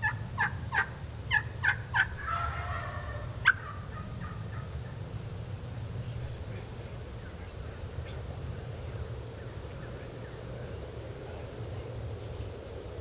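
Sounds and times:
turkey gobble: 0:00.0 - 0:05.0
turkey yelps: 0:00.0 - 0:05.0.

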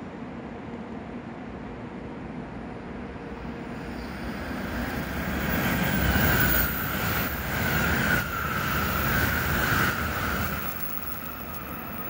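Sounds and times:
high-speed train rushing past: 0:00.0 - 0:12.0
steady high whine: 0:02.8 - 0:12.0.

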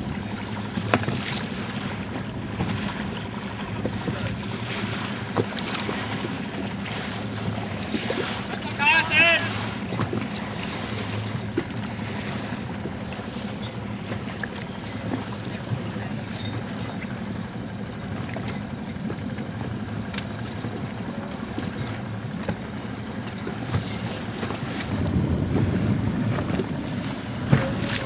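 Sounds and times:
water noise: 0:00.0 - 0:28.0
wind: 0:00.0 - 0:28.0
low rumble: 0:24.9 - 0:28.0.

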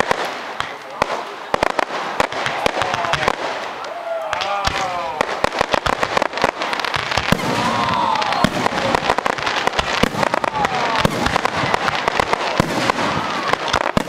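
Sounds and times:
fireworks bangs and crackling: 0:00.0 - 0:14.0.

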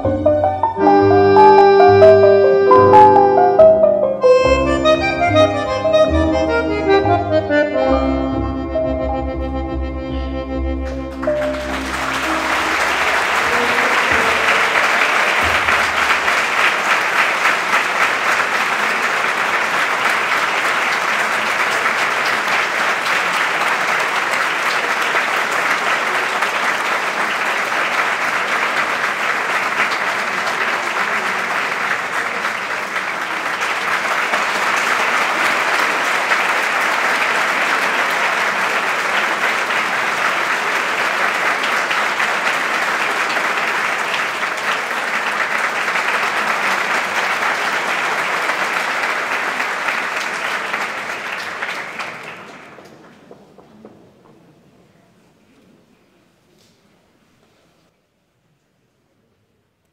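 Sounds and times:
audience applauding: 0:00.0 - 0:03.8, 0:10.8 - 0:54.0
held bandoneon notes: 0:00.0 - 0:16.4.

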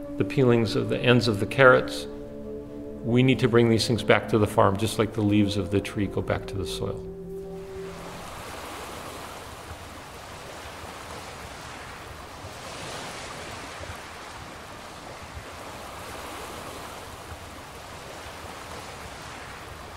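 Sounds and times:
ocean waves washing in: 0:07.5 - 0:19.9.

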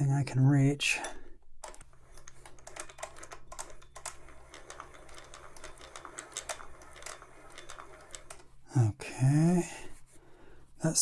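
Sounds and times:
sewing machine gears clicking: 0:01.6 - 0:08.8.

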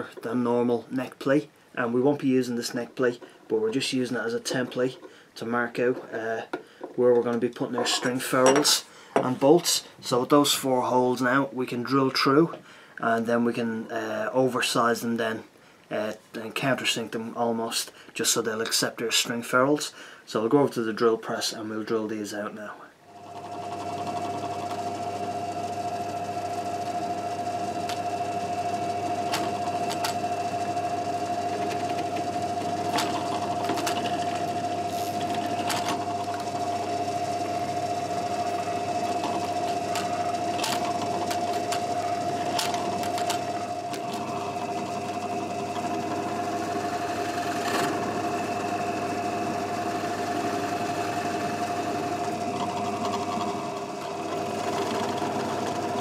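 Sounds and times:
drill press drilling wood: 0:23.2 - 0:56.0.

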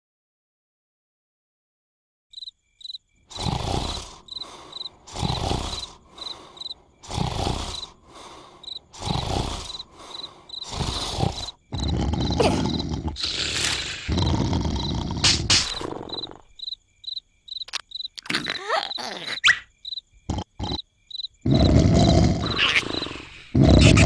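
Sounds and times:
crickets chirping: 0:02.3 - 0:24.0
cartoon character snoring: 0:03.3 - 0:16.6, 0:18.3 - 0:19.5, 0:20.3 - 0:20.8, 0:21.4 - 0:24.0.

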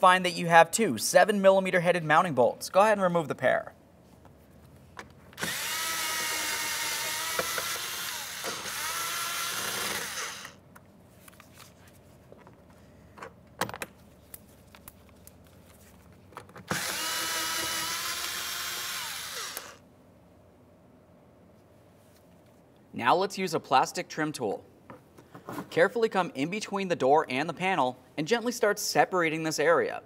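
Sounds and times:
cordless drill whining: 0:05.4 - 0:10.6, 0:16.7 - 0:19.8.

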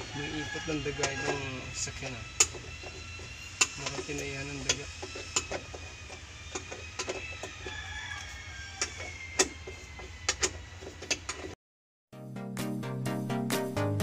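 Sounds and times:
hand tool clicking on metal: 0:02.3 - 0:11.5.

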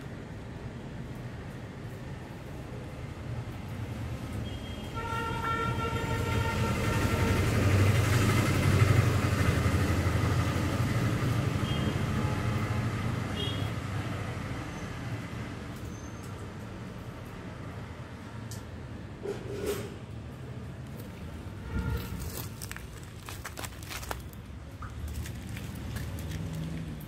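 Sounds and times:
vehicle horn: 0:04.4 - 0:07.6, 0:13.4 - 0:13.7, 0:21.6 - 0:22.6
vehicle passing by: 0:06.5 - 0:15.4, 0:20.9 - 0:27.0.

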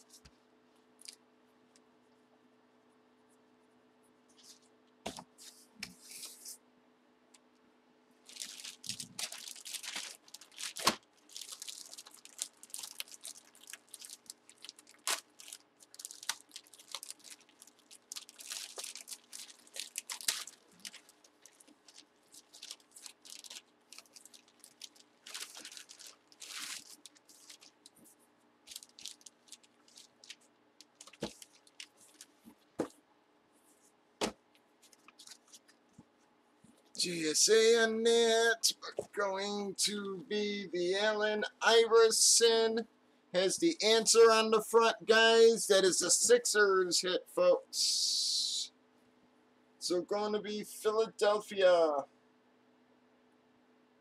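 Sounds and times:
plastic bag crinkling: 0:08.2 - 0:32.8, 0:34.8 - 0:35.9.

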